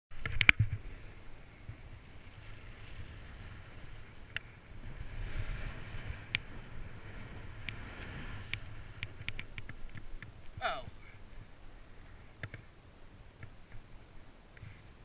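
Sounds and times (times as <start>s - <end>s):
wind buffeting microphone: 0.1s - 15.0s
skis scraping over snow: 0.6s - 10.2s.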